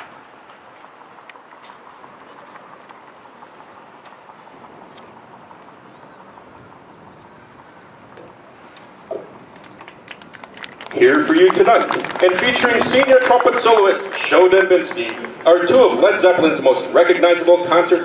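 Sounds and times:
faint steady high tone: 0:00.0 - 0:09.3
crowd murmuring: 0:09.1 - 0:17.8.

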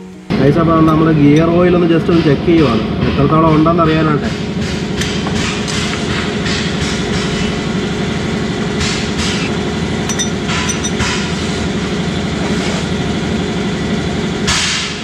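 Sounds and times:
engine droning: 0:00.3 - 0:15.0
socket wrench rasping: 0:10.1 - 0:11.3.

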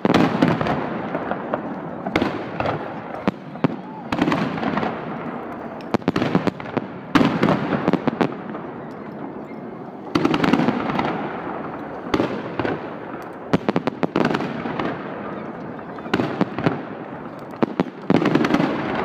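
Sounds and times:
firework crackling: 0:00.0 - 0:19.0.

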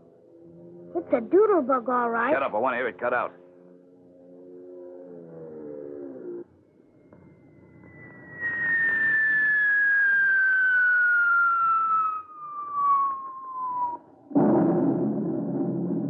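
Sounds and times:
long falling whistle: 0:06.9 - 0:14.3
rushing noise: 0:08.0 - 0:16.0
loud boom: 0:08.3 - 0:16.0.

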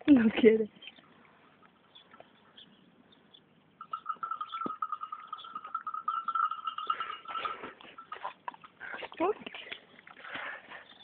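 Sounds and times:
donkey calling: 0:03.8 - 0:08.9.

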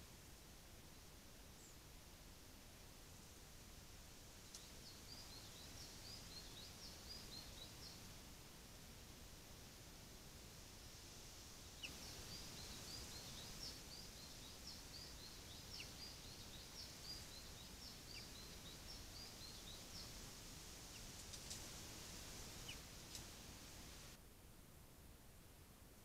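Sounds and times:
songbird singing: 0:00.9 - 0:01.9, 0:04.2 - 0:08.4, 0:10.8 - 0:24.2
faint sharp ticks: 0:04.5 - 0:04.7, 0:21.2 - 0:21.7, 0:22.7 - 0:23.4.

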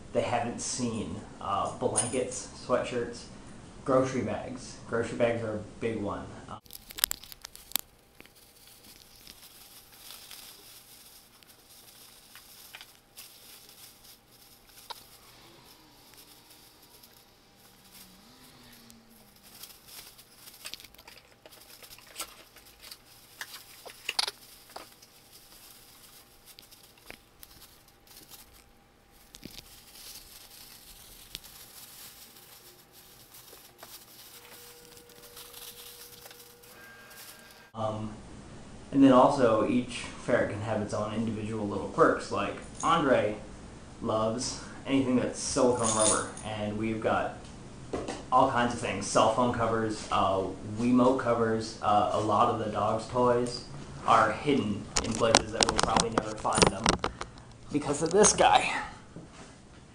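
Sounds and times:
plastic bag rustling: 0:06.6 - 0:37.8, 0:54.1 - 0:58.6.

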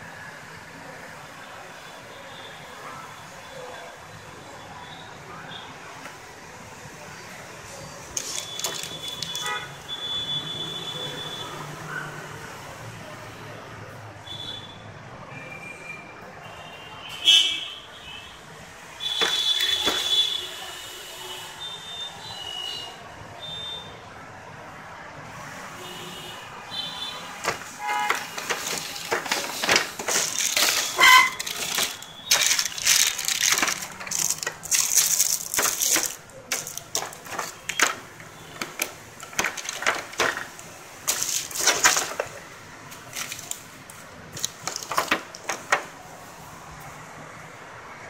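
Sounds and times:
plastic bags crinkling: 0:08.1 - 0:09.7, 0:19.0 - 0:20.4, 0:27.3 - 0:45.9.

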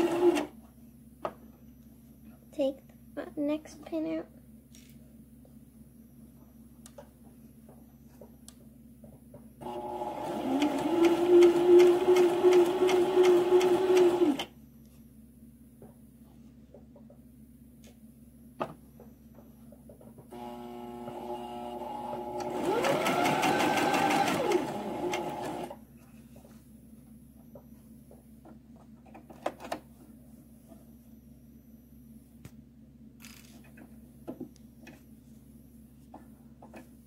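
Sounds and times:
sewing machine stitching: 0:00.0 - 0:00.5, 0:09.6 - 0:14.5, 0:20.4 - 0:25.8.

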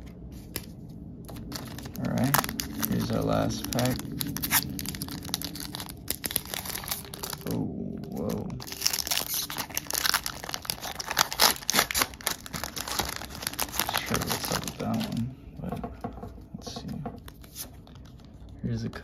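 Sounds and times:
foil wrapper crinkling and tearing: 0:01.3 - 0:15.3.

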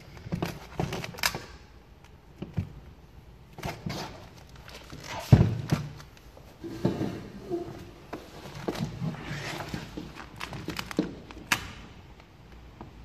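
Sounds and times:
vinyl film rustling and crinkling: 0:03.5 - 0:06.6, 0:07.8 - 0:11.8.

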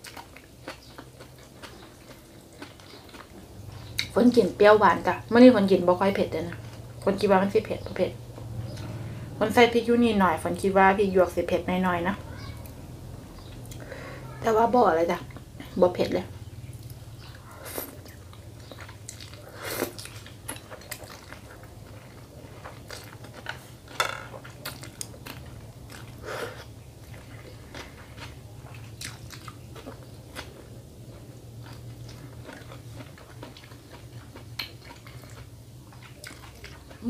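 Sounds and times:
person chewing noodles: 0:00.0 - 0:04.2, 0:16.7 - 0:37.0
low steady hum: 0:00.0 - 0:37.0.

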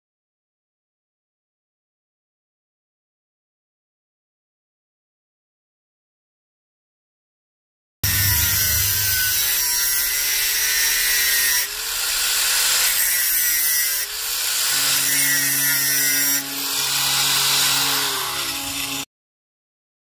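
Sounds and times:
angle grinder screeching on metal: 0:08.0 - 0:19.1.

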